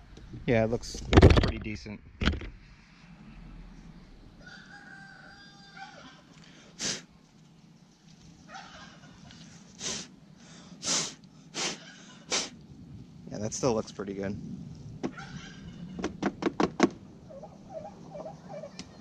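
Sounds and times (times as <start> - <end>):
rooster crowing faintly: 4.3 - 6.4.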